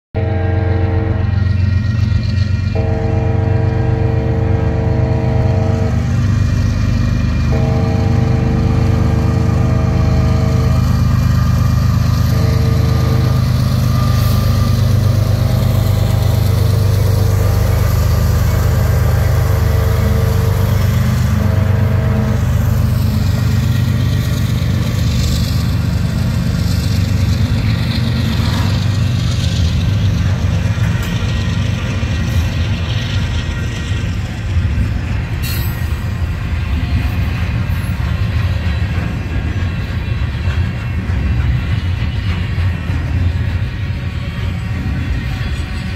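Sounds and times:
locomotive horn blasts: 0:00.2 - 0:01.7, 0:02.7 - 0:06.7, 0:07.4 - 0:25.8
low locomotive engine rumble: 0:00.2 - 0:45.9
train wheels on rails: 0:00.2 - 0:45.9.

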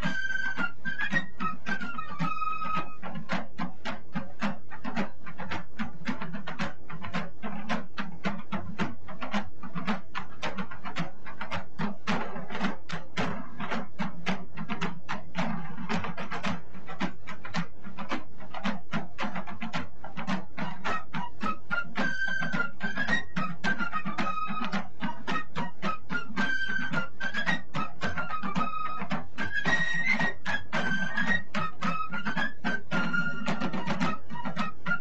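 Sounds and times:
percussive background music: 0:00.0 - 0:35.0.

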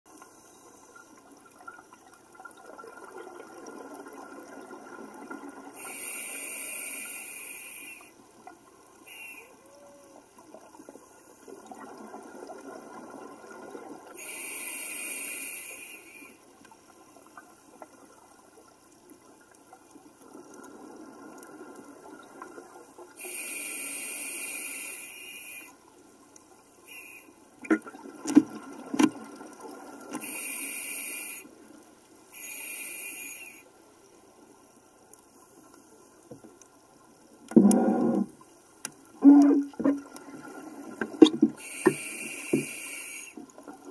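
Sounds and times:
scuba regulator breathing: 0:05.8 - 0:08.2, 0:09.1 - 0:10.0, 0:14.2 - 0:16.4, 0:23.2 - 0:25.8, 0:30.2 - 0:31.5, 0:32.4 - 0:33.7, 0:41.6 - 0:43.4.

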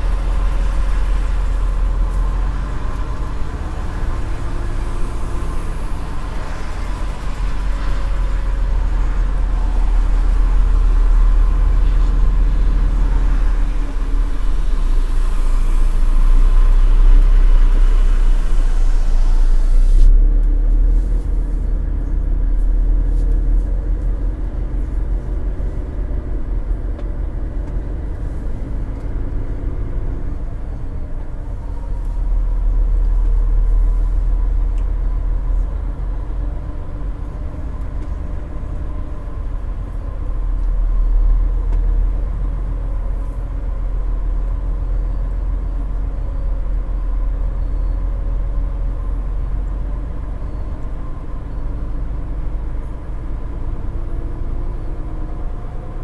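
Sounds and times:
truck engine and road rumble: 0:00.0 - 0:56.0
hiss: 0:17.9 - 0:20.1.

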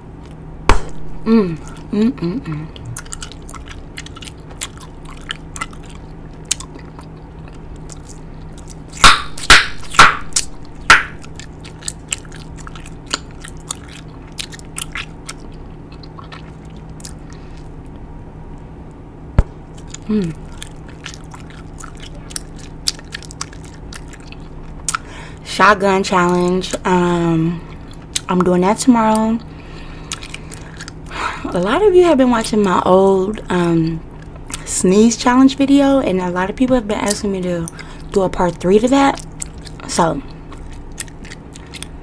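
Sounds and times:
loud bubble gum snaps: 0:00.7 - 0:01.0
gum chewing clicks and smacks: 0:01.6 - 0:18.6, 0:19.4 - 0:25.3, 0:27.6 - 0:31.6, 0:33.4 - 0:34.7, 0:37.0 - 0:42.0.

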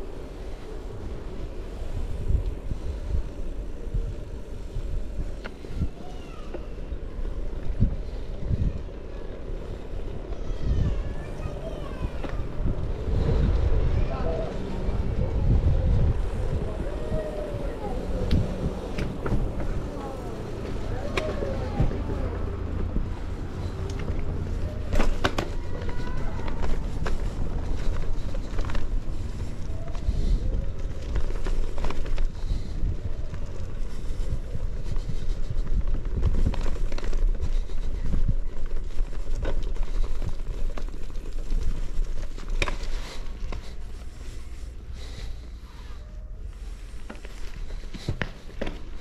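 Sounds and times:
bicycle rumble on rough pavement: 0:00.0 - 0:49.0
bicycle clicks and rattles: 0:15.5 - 0:45.4, 0:46.5 - 0:49.0.

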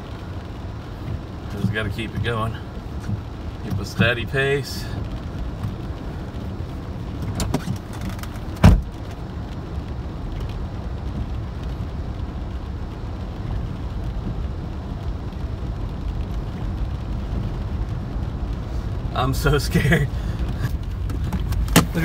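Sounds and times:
car driving through floodwater: 0:00.0 - 0:22.0
loud thump: 0:08.6 - 0:08.9, 0:21.7 - 0:22.0.

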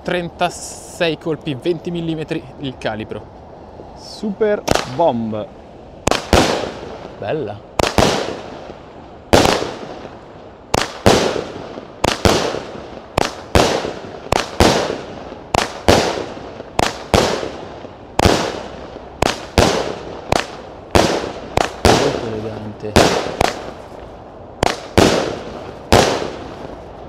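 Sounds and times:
firework bangs echoing: 0:04.6 - 0:05.2, 0:06.0 - 0:24.0, 0:24.6 - 0:26.8.

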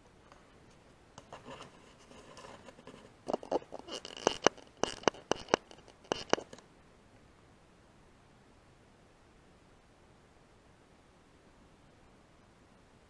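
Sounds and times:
sharp clicks and scratching: 0:00.3 - 0:06.6.

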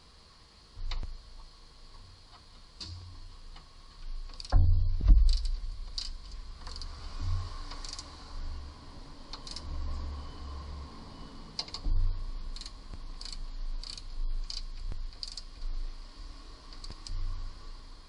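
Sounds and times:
ratchet wrench clicking: 0:04.3 - 0:06.9, 0:07.7 - 0:08.1, 0:09.3 - 0:09.7, 0:11.6 - 0:11.8, 0:12.5 - 0:15.6, 0:16.7 - 0:17.2
metallic knock: 0:04.5 - 0:05.9.

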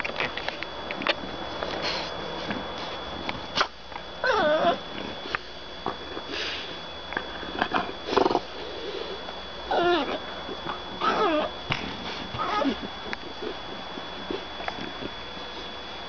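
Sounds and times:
dog breathy noises: 0:01.6 - 0:03.7, 0:09.9 - 0:15.8
dog whiny grumbles: 0:04.2 - 0:06.7, 0:07.5 - 0:15.8.

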